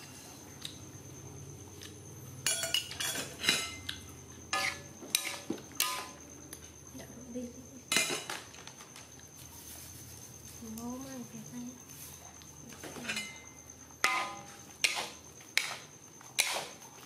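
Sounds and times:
metal spoon clanking on wok: 4.5 - 6.2, 14.0 - 15.0.

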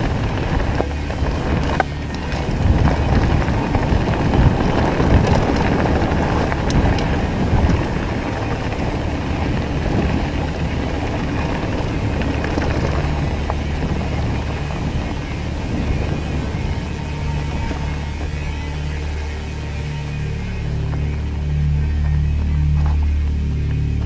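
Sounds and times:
clicks and knocks from rocks: 0.0 - 16.2
bike rattling: 0.0 - 24.0
tyres rumbling on dirt: 0.0 - 24.0
wind buffeting microphone: 0.0 - 24.0.

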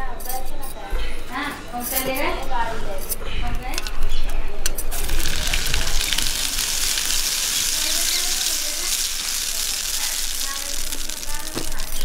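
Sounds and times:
hot oil sizzling in a pan: 4.9 - 12.0.

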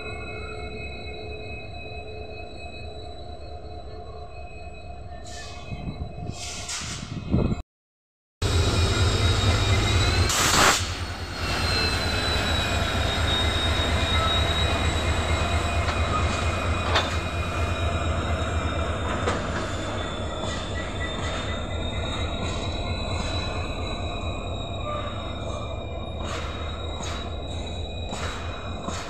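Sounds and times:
high wheel squeal: 0.0 - 7.4, 8.5 - 29.0
locomotive engine drone: 8.4 - 29.0
loud rushing hiss: 10.3 - 11.3
wheels clanking over rail joints: 24.8 - 29.0.

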